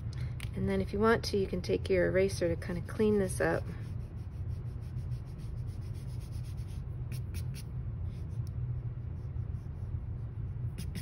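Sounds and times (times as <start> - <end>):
steady low hum: 0.0 - 11.0
eraser rubbing on paper: 2.7 - 8.4, 9.0 - 11.0.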